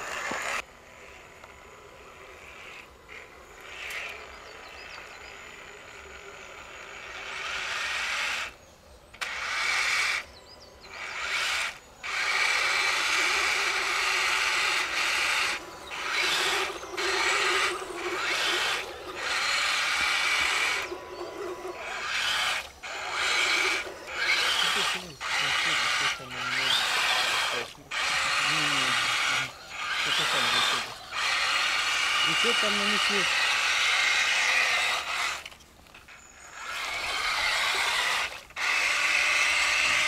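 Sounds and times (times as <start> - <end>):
electric motor whining: 0.0 - 8.6, 9.2 - 40.0
tyres churning through mud: 11.0 - 40.0.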